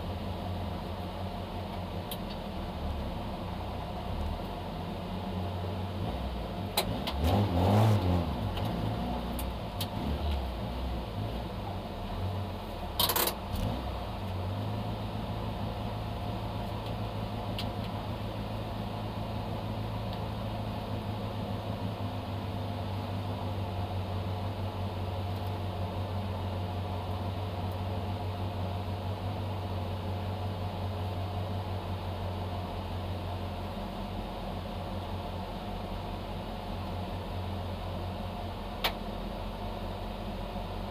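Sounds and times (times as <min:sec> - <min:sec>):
car engine idling: 0:00.0 - 0:07.3, 0:08.0 - 0:40.9.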